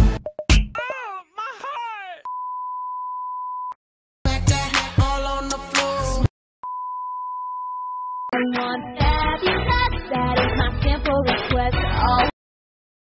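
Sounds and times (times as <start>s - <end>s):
pop music: 4.3s - 6.3s, 8.3s - 12.3s.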